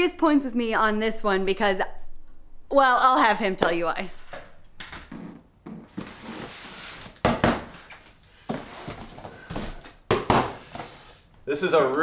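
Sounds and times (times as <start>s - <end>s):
cardboard boxes scraping and rustling: 5.7s - 9.9s
dull thumps of boxes: 8.5s - 10.9s.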